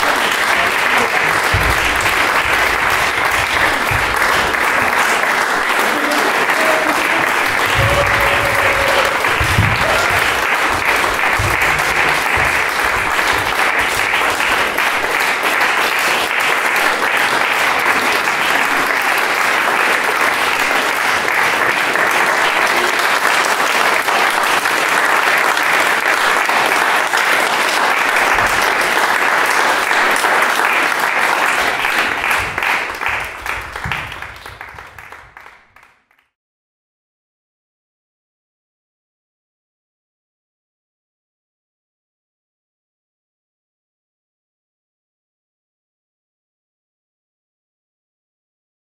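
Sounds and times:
audience applause: 0.0 - 36.2.

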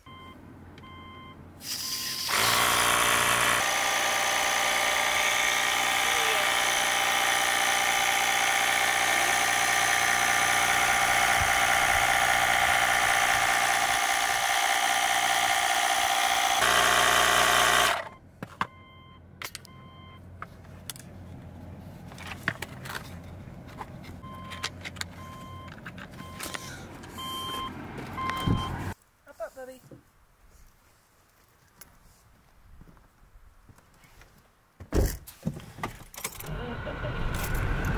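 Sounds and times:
car warning chime beeping: 0.0 - 2.0, 18.0 - 20.3, 24.2 - 28.8
tyre inflator buzzing: 1.6 - 18.2.

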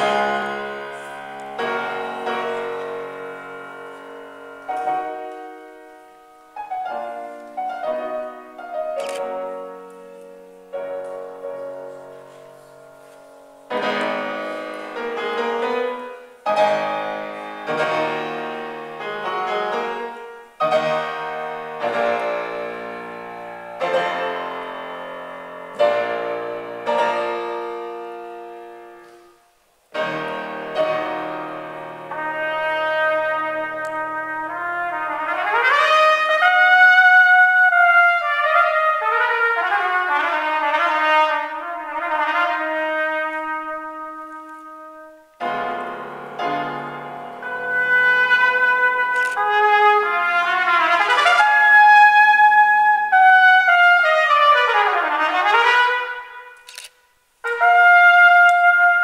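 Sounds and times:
grand piano playing: 0.0 - 59.0.

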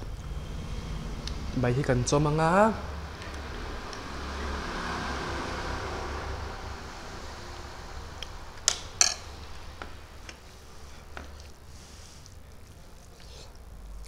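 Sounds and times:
low hum: 0.0 - 14.0
metal spoon clinking on dish: 9.0 - 9.3.

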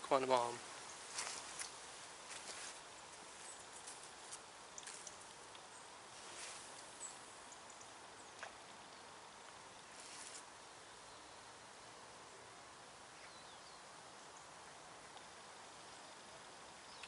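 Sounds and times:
short rustles: 1.1 - 5.3
faint ticks: 3.8 - 5.7.

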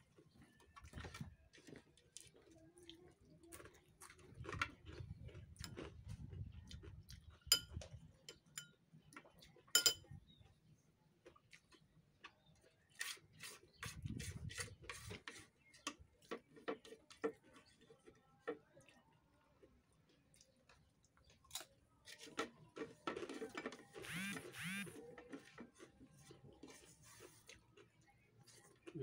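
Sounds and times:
chewing clicks and smacks: 0.1 - 9.7, 11.2 - 13.5, 15.7 - 22.3.

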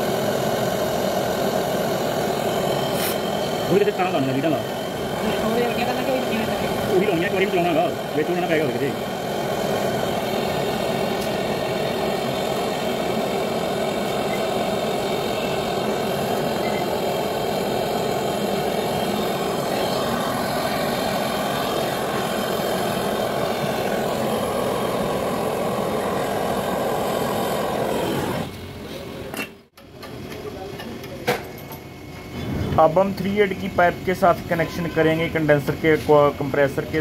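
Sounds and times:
torch flame rushing: 0.0 - 29.3.

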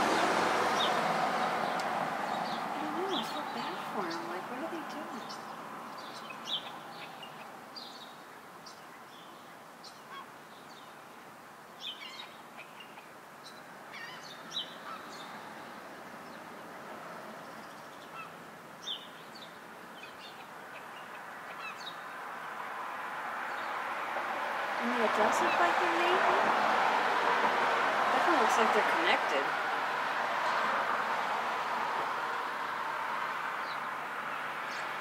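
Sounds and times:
starlings calling: 0.0 - 16.5, 17.4 - 22.6, 24.8 - 26.4, 33.6 - 35.0
street noise: 0.0 - 35.0.

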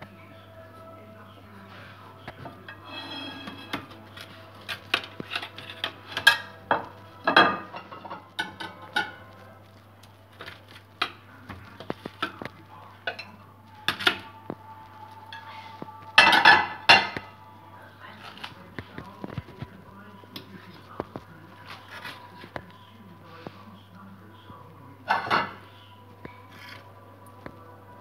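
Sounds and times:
metal spoon scraping tray: 2.8 - 6.6.

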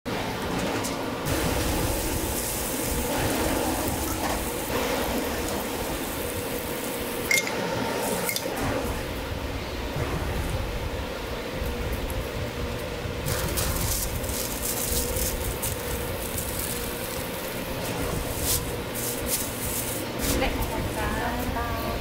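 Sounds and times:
faint background hum: 0.1 - 22.0
food sizzling on a griddle: 1.3 - 8.4, 13.3 - 20.0.

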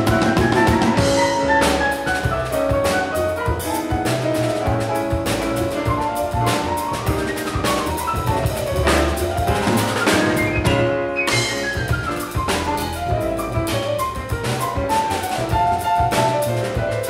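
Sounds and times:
double bass: 0.0 - 17.0
drums and cymbals: 0.0 - 17.0
piano: 0.0 - 17.0.

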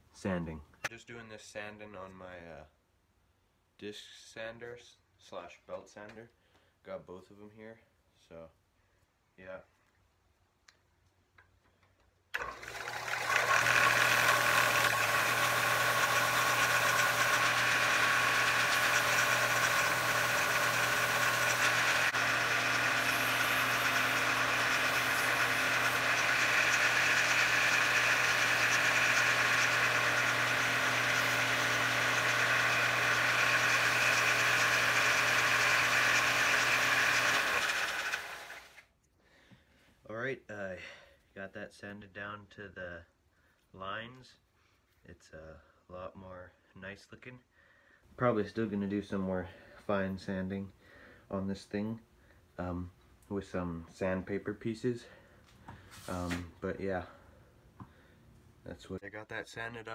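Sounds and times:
sander motor hum: 12.4 - 38.8
wood being sanded: 13.0 - 38.7.

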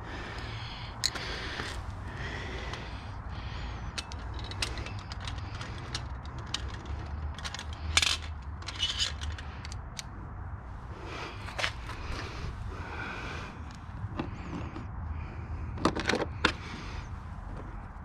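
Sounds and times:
screwdrivers clattering in plastic holder: 3.9 - 10.0, 15.7 - 16.6.

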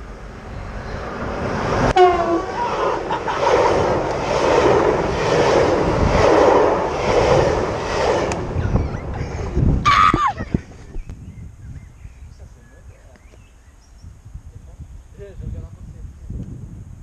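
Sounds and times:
train passing close by: 0.0 - 9.8.

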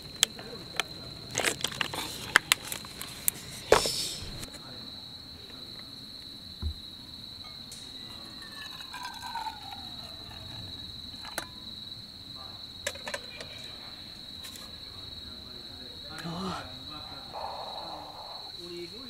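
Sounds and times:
night insects chirring: 0.0 - 19.0
kettle clinking on stove: 7.5 - 10.0
wine pouring into metal mug: 8.3 - 10.4.

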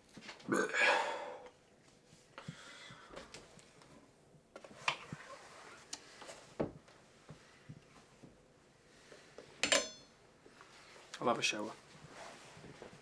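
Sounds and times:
clothes being handled: 4.5 - 8.4, 9.1 - 13.0
soft knocks and rustles: 6.2 - 8.4.

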